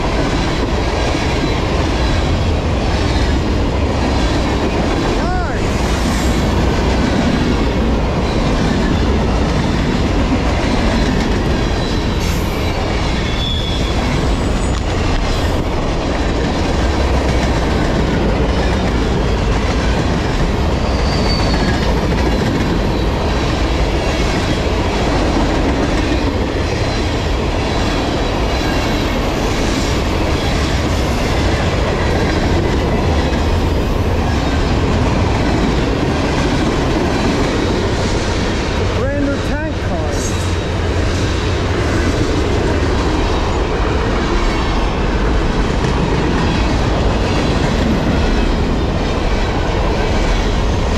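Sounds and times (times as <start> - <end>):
train wheels rumbling on rail: 0.0 - 50.9
wheels clickety-clack: 6.3 - 39.5, 40.1 - 50.9
high wheel squeals: 11.7 - 15.4, 20.8 - 23.2.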